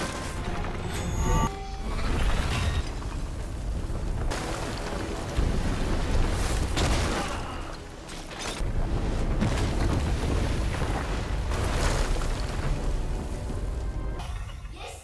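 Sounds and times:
debris crashing: 2.0 - 13.8.

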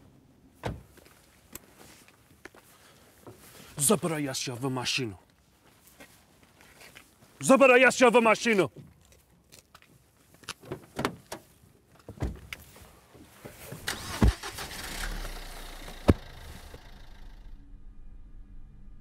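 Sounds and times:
car doors thudding shut: 0.6 - 1.0, 12.2 - 12.5
car engine starting: 13.7 - 17.9.

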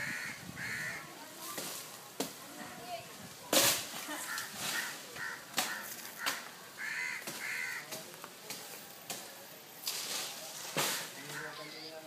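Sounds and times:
crow cawing: 0.0 - 1.1, 4.2 - 7.9, 11.0 - 11.7.

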